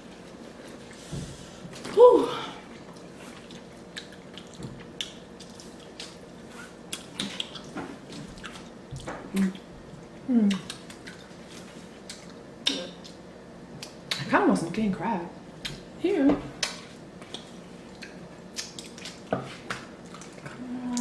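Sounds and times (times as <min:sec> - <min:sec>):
person humming: 0:01.9 - 0:02.6, 0:10.3 - 0:10.7, 0:20.6 - 0:21.0
wet chewing and lip smacks: 0:02.8 - 0:11.4, 0:12.0 - 0:13.2, 0:16.6 - 0:20.5.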